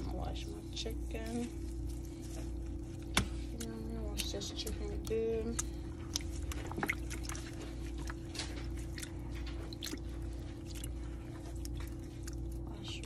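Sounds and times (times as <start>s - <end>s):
steady low hum: 0.0s - 13.0s
wet squelches and splashes: 0.8s - 13.0s.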